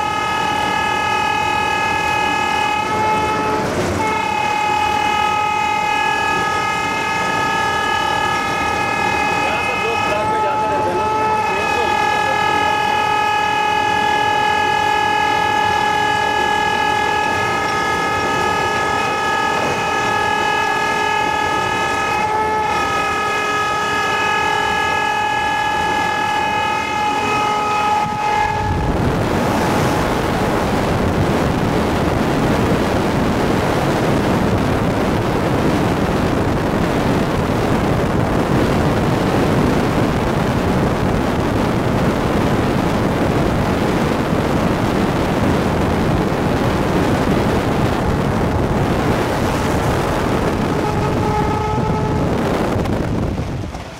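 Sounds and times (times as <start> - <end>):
high-pitched locomotive whine: 0.0 - 53.9
roar of wind and wheels on rail: 0.0 - 53.9
train rumble: 0.0 - 53.9.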